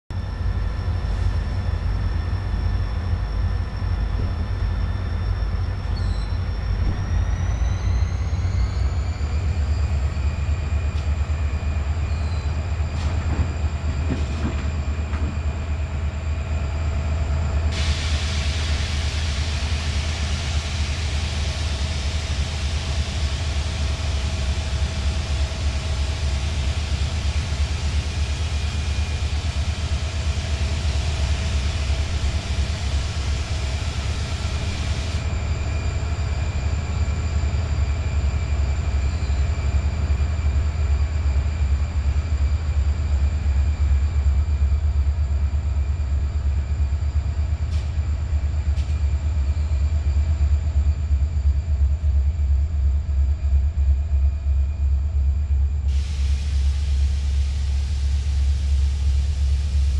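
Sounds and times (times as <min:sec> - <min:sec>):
diesel locomotive rumble: 0:00.0 - 0:59.9
hiss: 0:17.7 - 0:35.8, 0:55.8 - 0:59.9.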